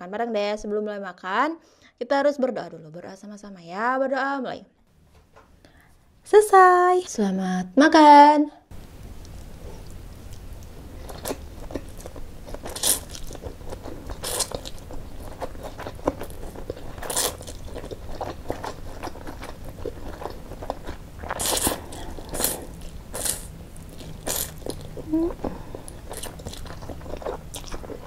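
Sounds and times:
wet chewing: 0:08.8 - 0:28.0
slurping noodles: 0:21.2 - 0:28.0.

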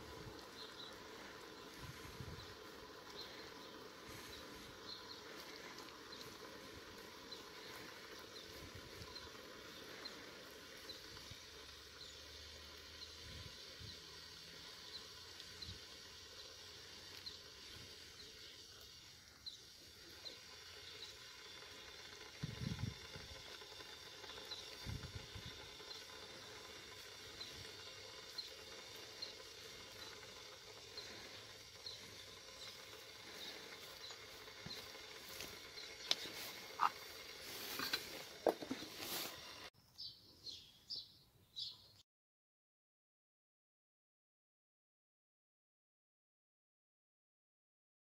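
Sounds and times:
bird chirping: 0:27.3 - 0:38.2, 0:39.8 - 0:42.0.

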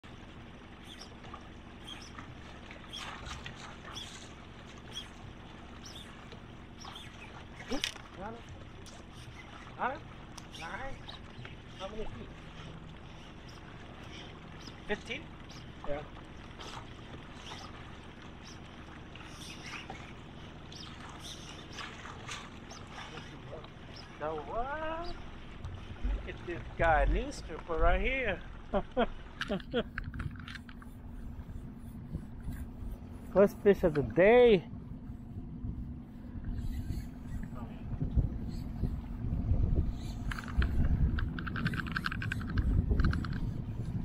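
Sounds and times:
outboard motor running low: 0:00.0 - 0:44.0.

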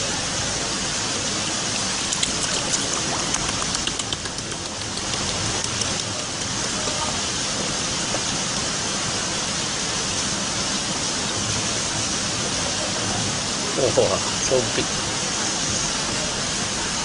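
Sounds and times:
rushing water: 0:00.0 - 0:17.0
sharp clicks and taps: 0:02.1 - 0:06.7.

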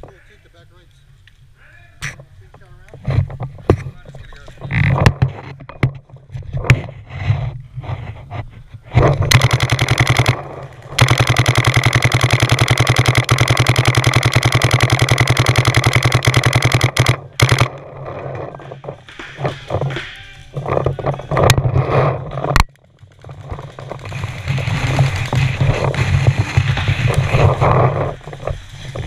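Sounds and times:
paintball marker firing rapidly: 0:09.0 - 0:18.1.

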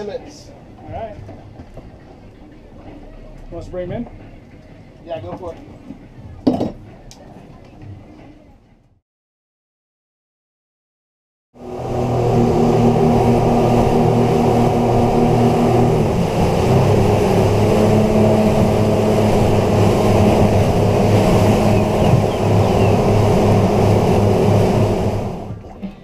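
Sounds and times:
hiss of wind and water: 0:11.6 - 0:26.0
outboard motors running: 0:11.6 - 0:26.0.

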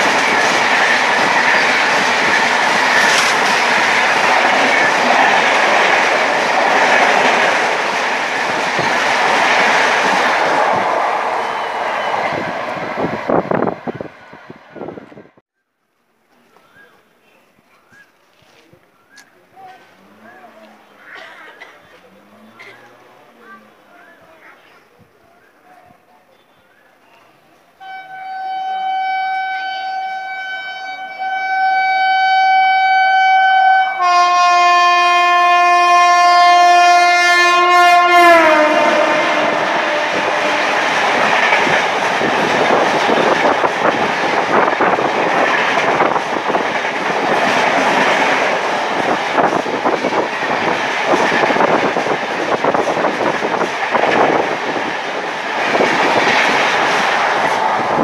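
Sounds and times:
locomotive horn blast: 0:27.8 - 0:41.1.

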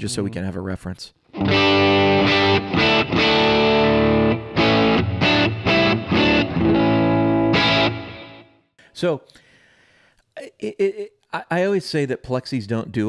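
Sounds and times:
electric guitar strumming chords: 0:01.3 - 0:08.6.

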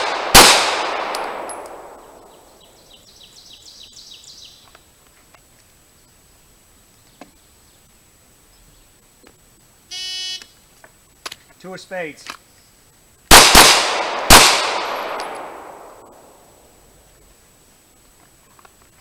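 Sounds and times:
pistol shot echo: 0:00.0 - 0:02.2, 0:13.3 - 0:16.4
bird singing high chirps: 0:02.1 - 0:04.7.

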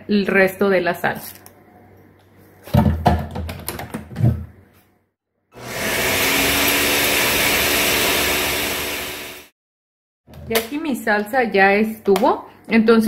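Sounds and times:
countertop blender running: 0:05.6 - 0:09.5.

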